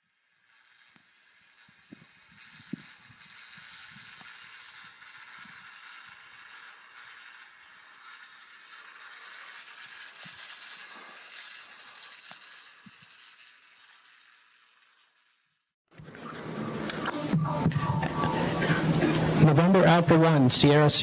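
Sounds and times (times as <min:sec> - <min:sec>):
high steady whine: 0:00.0 - 0:15.4, 0:16.0 - 0:21.0
steady hiss: 0:00.0 - 0:15.4.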